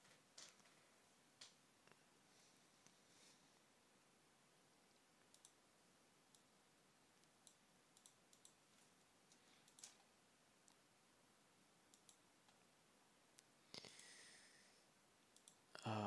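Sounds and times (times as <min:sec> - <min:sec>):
computer mouse and keyboard clicks: 0:00.0 - 0:00.8, 0:05.2 - 0:05.6, 0:07.2 - 0:08.6, 0:09.6 - 0:10.1, 0:11.9 - 0:12.6.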